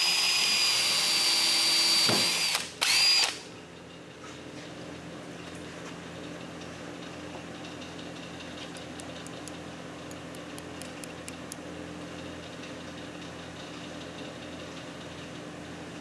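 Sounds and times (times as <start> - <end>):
low machine hum: 2.8 - 16.0
pliers clicking on metal bolt: 8.7 - 11.6.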